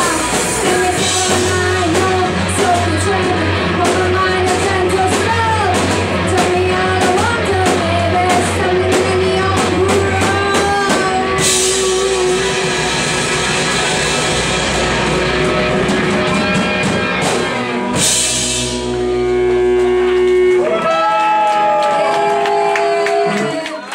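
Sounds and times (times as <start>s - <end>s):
person singing: 0.0s - 13.2s
live rock band playing: 0.0s - 23.9s.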